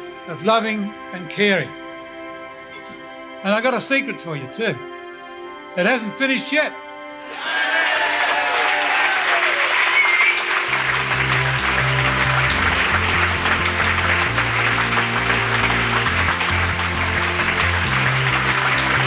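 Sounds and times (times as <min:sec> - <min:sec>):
crowd clapping: 0:07.2 - 0:19.0
music with stepping bass line: 0:10.7 - 0:19.0.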